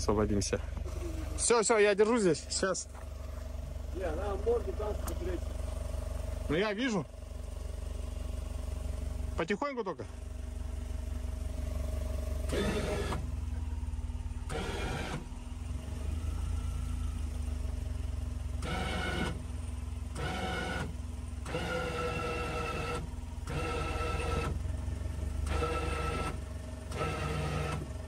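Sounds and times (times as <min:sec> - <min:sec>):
vehicle engine revving: 0:10.2 - 0:28.0.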